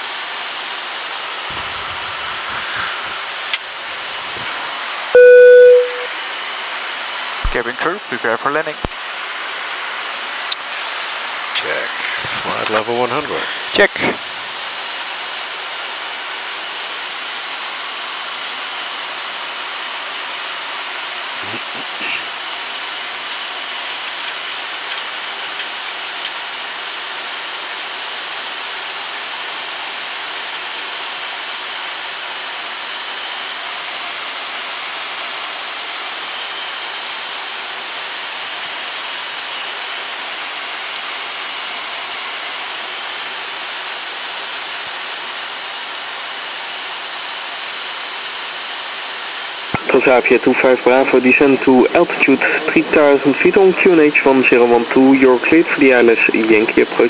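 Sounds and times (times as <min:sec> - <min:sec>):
rush of air over cockpit: 0:01.2 - 0:06.0, 0:10.6 - 0:15.0, 0:49.7 - 0:57.0.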